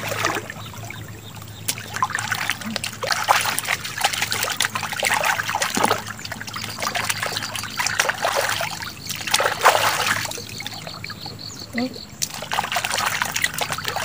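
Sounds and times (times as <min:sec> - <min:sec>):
water splashing and sloshing: 0:00.0 - 0:14.0
water trickling: 0:00.0 - 0:14.0.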